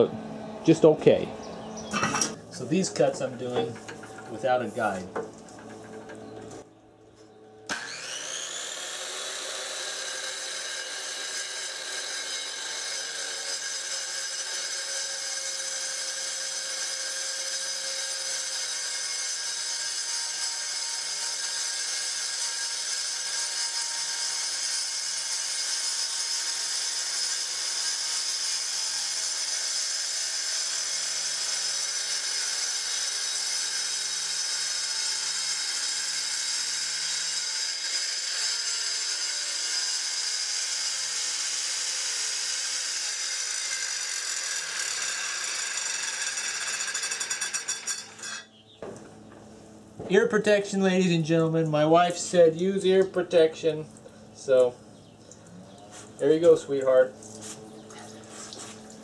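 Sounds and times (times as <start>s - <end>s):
circular saw cutting stone: 0.0s - 6.2s, 7.7s - 48.6s.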